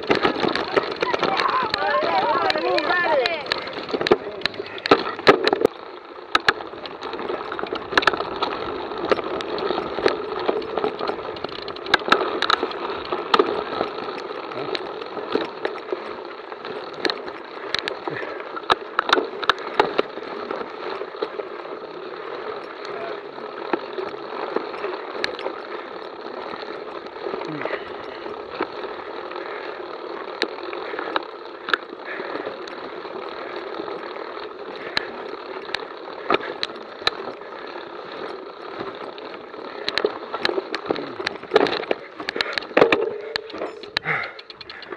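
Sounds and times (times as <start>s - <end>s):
bike tyres on dirt trail: 0.0s - 44.9s
sharp clicks and knocks: 39.8s - 44.9s.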